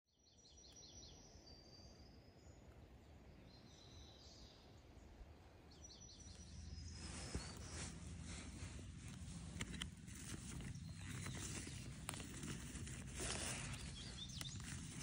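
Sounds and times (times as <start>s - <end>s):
faint birdsong: 0.1s - 15.0s
low steady rumble: 4.9s - 15.0s
rustling: 6.6s - 15.0s.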